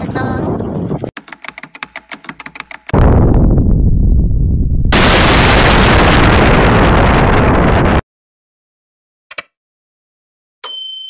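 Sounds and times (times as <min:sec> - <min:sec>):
loud boom: 0:03.0 - 0:08.0.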